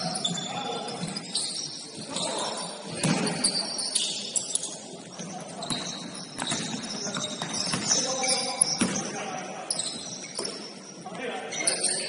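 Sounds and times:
shoes squeaking on hardwood: 0:03.0 - 0:09.0.

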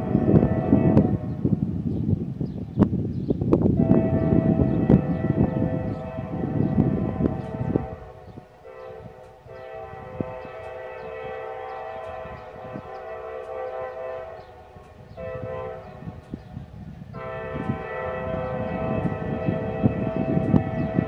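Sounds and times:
locomotive air horn blasts: 0:00.0 - 0:01.6, 0:03.8 - 0:21.0.

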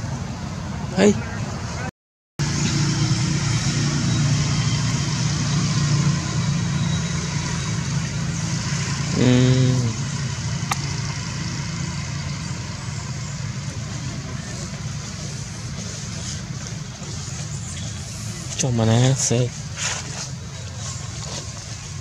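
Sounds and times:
engine idling: 0:02.4 - 0:22.0.

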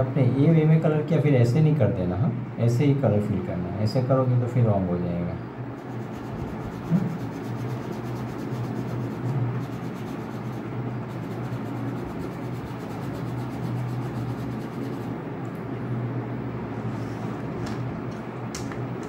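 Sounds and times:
steady low hum: 0:00.0 - 0:19.0
crayon rubbing on paper: 0:05.8 - 0:15.2.

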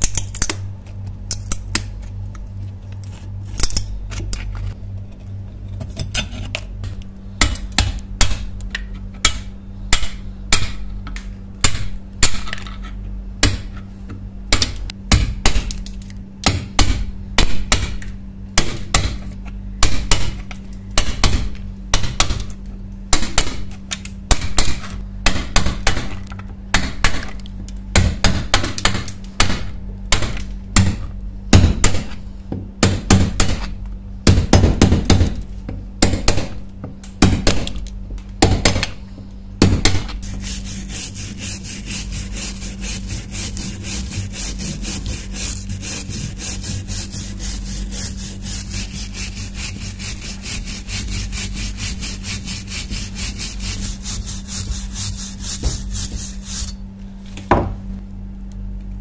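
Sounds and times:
wire brush scrubbing iron: 0:40.2 - 0:56.8.

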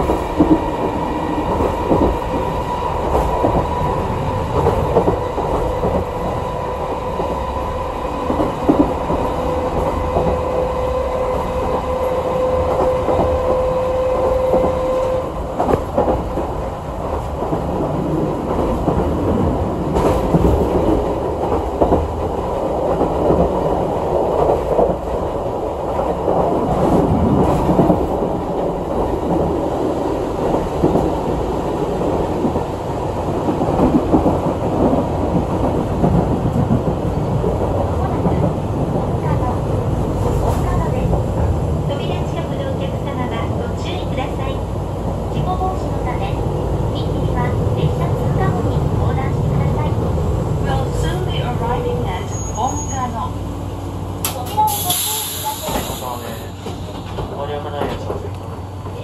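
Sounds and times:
rail-joint clacks: 0:00.0 - 0:07.4, 0:08.2 - 0:44.6, 0:54.2 - 0:59.0
train wheels rumbling on rails: 0:00.0 - 0:59.0.

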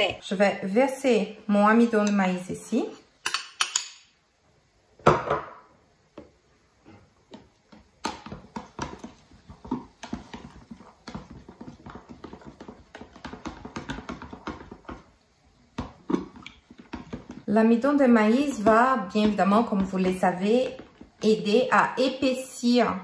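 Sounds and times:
metal spoon stirring in plastic jug: 0:07.4 - 0:15.1, 0:15.8 - 0:21.4.

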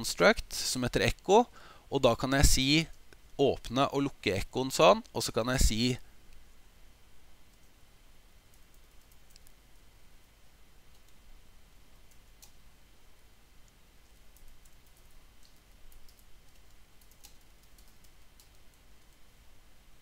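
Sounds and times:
low steady hum: 0:00.0 - 0:20.0
keyboard typing clicks: 0:08.5 - 0:09.6, 0:14.0 - 0:19.2.

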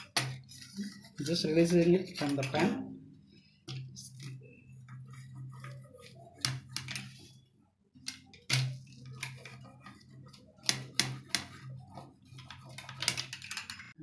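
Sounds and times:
metal wheel clicking on pan: 0:12.4 - 0:14.0.

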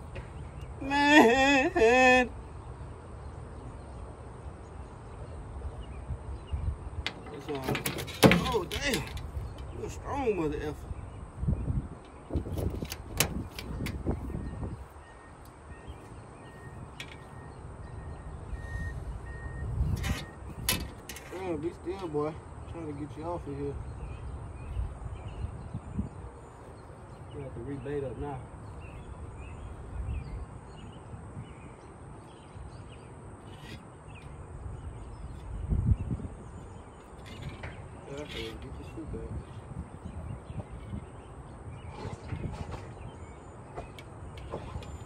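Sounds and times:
wind rumble on microphone: 0:00.0 - 0:27.8, 0:28.6 - 0:45.0
faint bird chirps: 0:13.4 - 0:20.6.

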